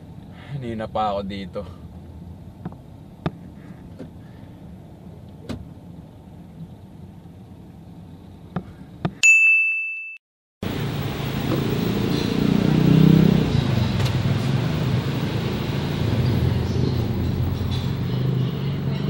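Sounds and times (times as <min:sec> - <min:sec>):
low traffic rumble: 0:00.0 - 0:09.0, 0:10.6 - 0:19.0
street ambience: 0:01.5 - 0:09.2, 0:10.6 - 0:19.0
bell-like ding: 0:09.2 - 0:10.2.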